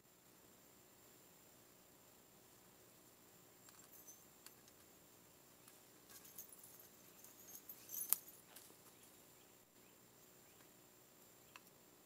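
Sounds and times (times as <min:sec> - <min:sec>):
light metal clinks: 0:03.6 - 0:04.9, 0:05.6 - 0:09.1.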